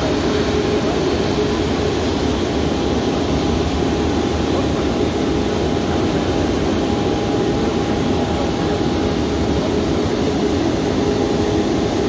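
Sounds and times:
jet engine high whine: 0.0s - 12.0s.

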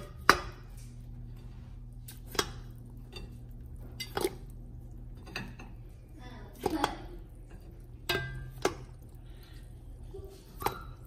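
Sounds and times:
sugar cones knocking in metal pot: 0.0s - 0.9s, 2.0s - 5.9s, 6.5s - 9.2s
steady low hum: 0.0s - 11.0s.

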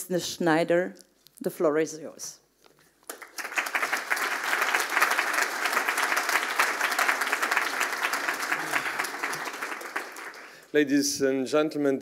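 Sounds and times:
audience applauding: 3.1s - 10.7s.

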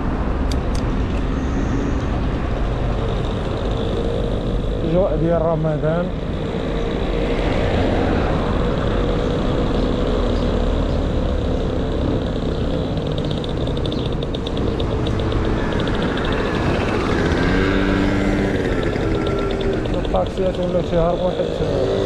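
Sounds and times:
motor traffic: 0.0s - 22.0s
fast ticking: 11.7s - 22.0s.

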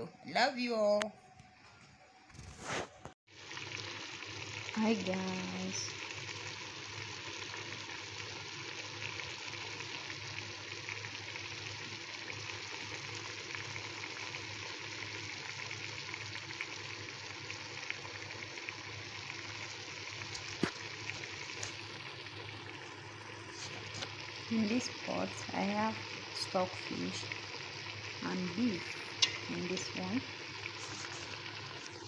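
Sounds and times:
pot sizzling with crackles: 2.2s - 32.0s.

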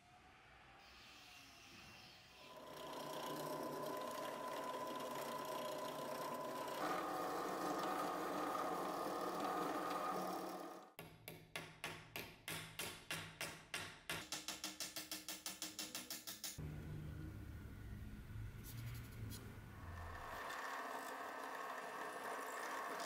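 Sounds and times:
drill press drilling brass: 2.5s - 10.9s, 20.1s - 23.0s.

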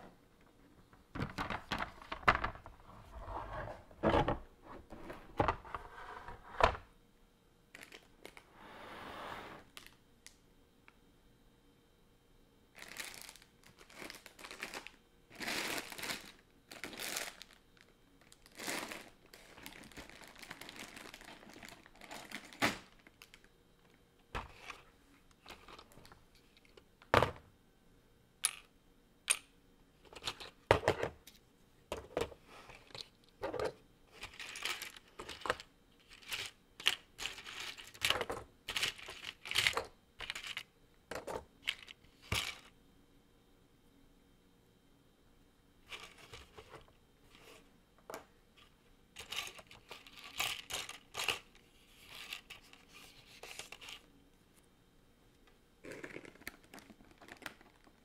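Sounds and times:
loose plastic parts rustling: 12.8s - 27.1s, 30.0s - 31.2s, 31.9s - 42.7s, 45.9s - 54.1s.

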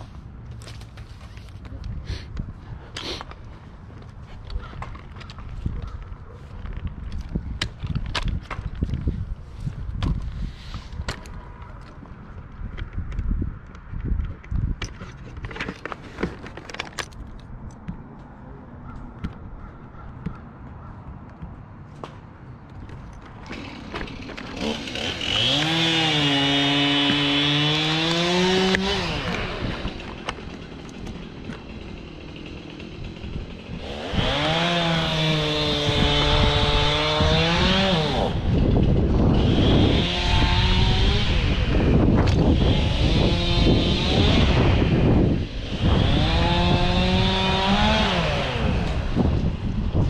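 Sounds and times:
chainsaw revving: 23.4s - 49.9s.

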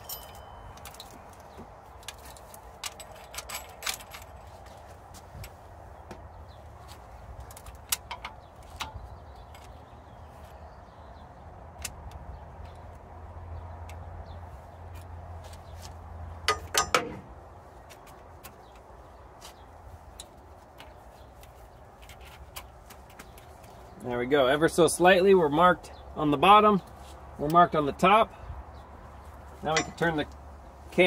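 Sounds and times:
metal clatter: 16.5s - 17.3s, 29.7s - 30.2s.

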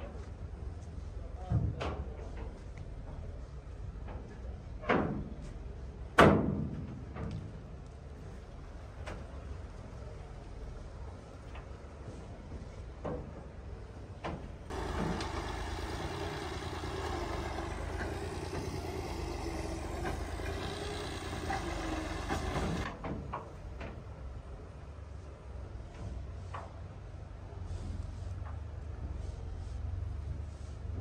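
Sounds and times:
tractor engine rumbling: 14.6s - 23.0s.

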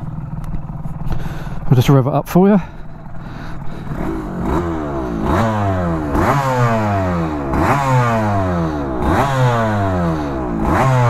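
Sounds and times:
two-stroke motorcycle engine revving: 2.6s - 11.0s.

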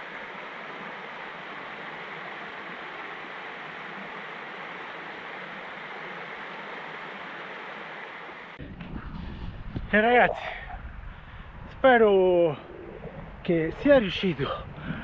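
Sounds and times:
creek flowing: 0.0s - 14.8s.

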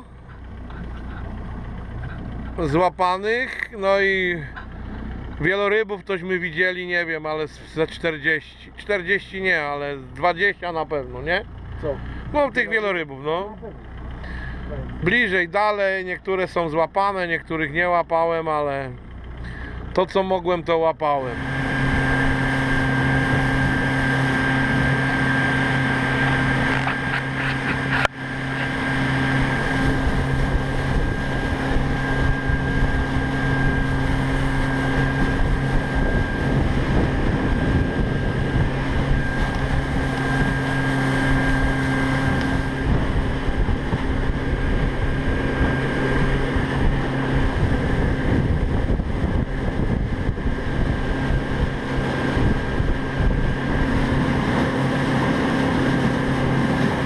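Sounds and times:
outboard motor running: 0.0s - 57.0s
wind buffeting microphone: 21.5s - 57.0s.

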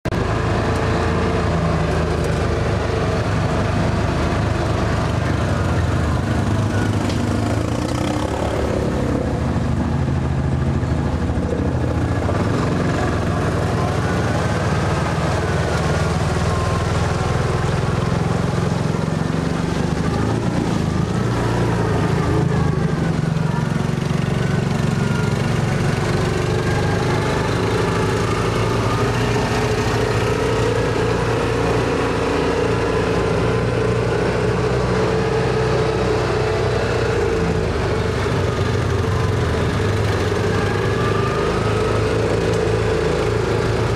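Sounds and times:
utility vehicle engine running: 0.0s - 43.9s.

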